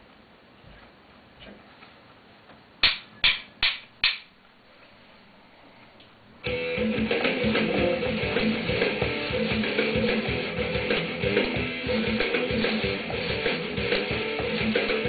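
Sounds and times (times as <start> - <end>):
strummed guitar music: 6.4 - 15.0.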